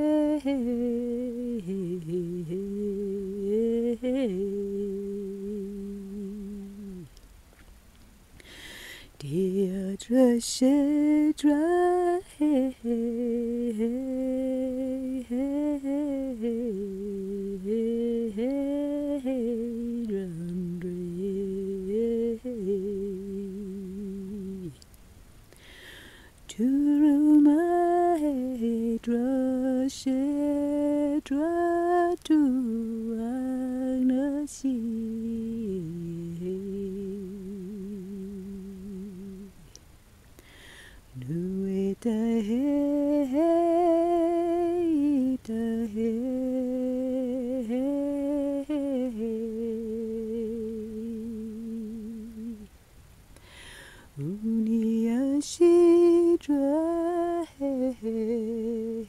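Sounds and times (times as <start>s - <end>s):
person humming: 0.0s - 7.2s, 26.5s - 39.8s
person breathing: 8.4s - 9.2s, 25.5s - 26.4s, 40.3s - 41.1s, 53.4s - 54.2s.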